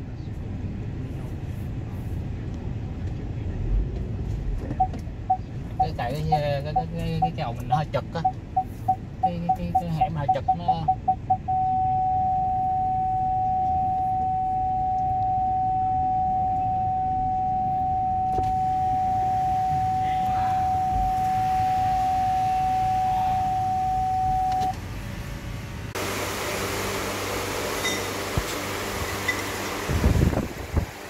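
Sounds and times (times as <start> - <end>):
steady mechanical hum: 0.0 - 31.0
parking sensor beeping: 4.7 - 24.8, 27.8 - 28.2.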